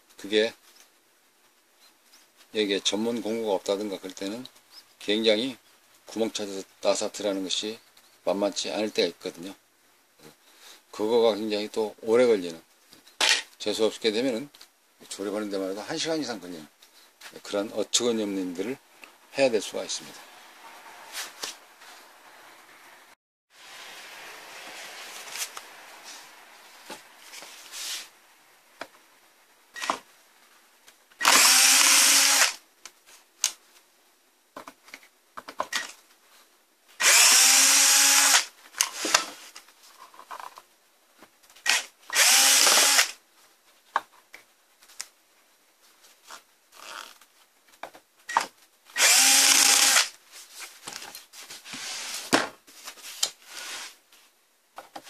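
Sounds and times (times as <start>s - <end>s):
electric drill motor whining: 31.2s - 32.6s, 37.0s - 38.5s, 42.1s - 43.1s, 49.0s - 50.1s.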